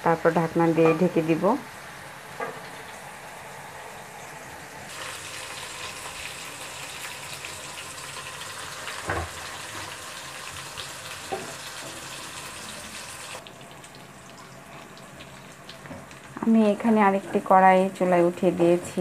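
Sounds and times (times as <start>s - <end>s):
curry sizzling in a pot: 0.2s - 17.6s
water pouring into pot: 4.9s - 15.8s.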